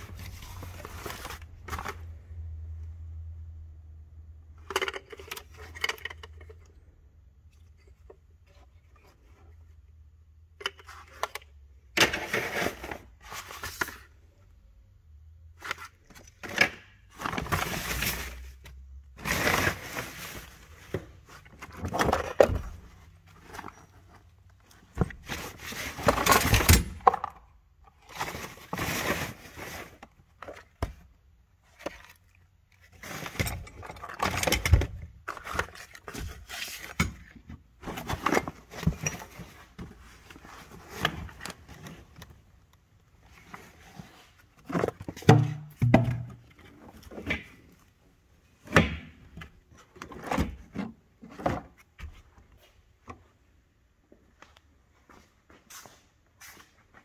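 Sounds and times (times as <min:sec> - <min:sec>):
metal parts and tools clattering: 0:04.5 - 0:06.8, 0:31.7 - 0:37.3.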